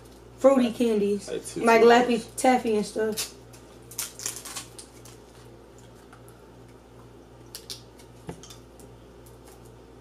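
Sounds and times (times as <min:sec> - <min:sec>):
steady low hum: 0:00.0 - 0:10.0
plastic candy wrappers crinkling: 0:03.9 - 0:05.5.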